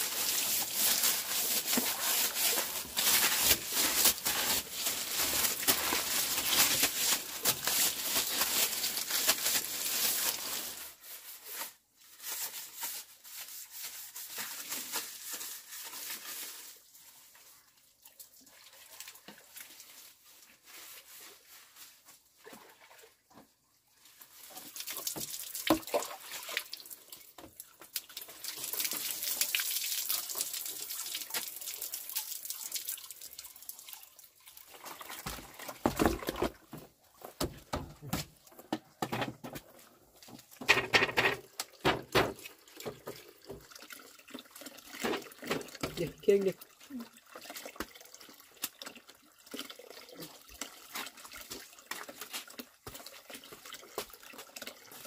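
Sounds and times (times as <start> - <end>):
water running and splashing: 0.0 - 11.3, 24.0 - 38.6, 40.1 - 55.0.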